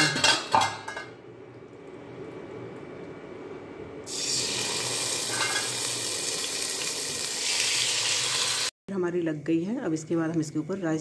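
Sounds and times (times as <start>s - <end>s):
chicken sizzling in hot oil: 4.1s - 8.7s.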